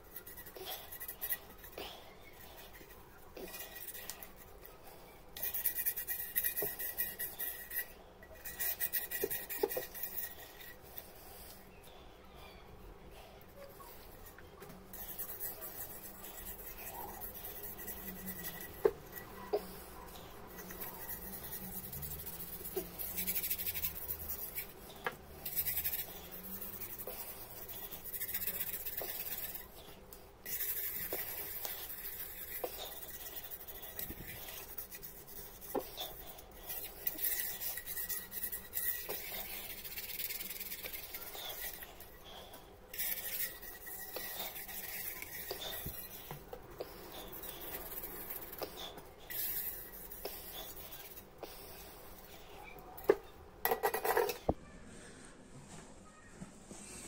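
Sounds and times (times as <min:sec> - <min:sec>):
lemon scrubbing copper bowl: 0:13.6 - 0:29.8, 0:30.4 - 0:42.2, 0:43.0 - 0:52.2.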